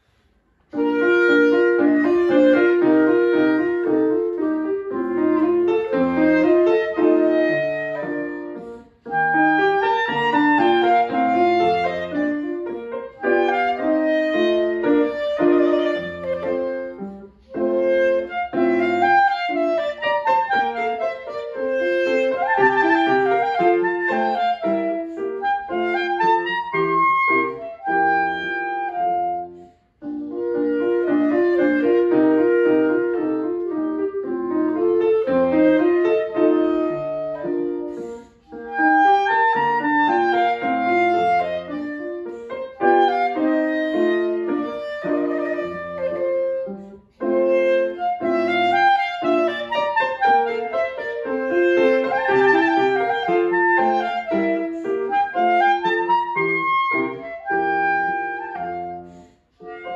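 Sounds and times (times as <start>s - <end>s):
piano chords: 0.0s - 59.9s
clarinet melody: 0.7s - 59.9s.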